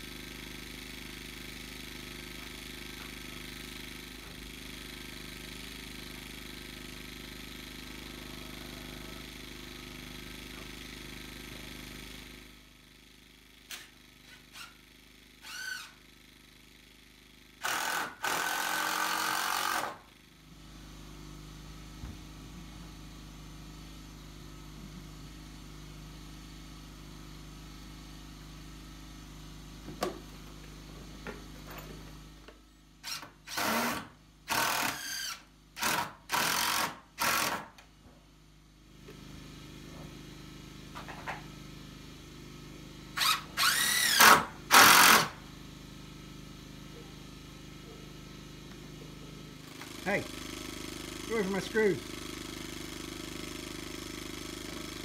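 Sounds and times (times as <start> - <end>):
cordless drill driving screws: 13.7 - 14.8, 15.4 - 16.0, 17.6 - 20.0, 33.0 - 37.8, 43.2 - 45.4.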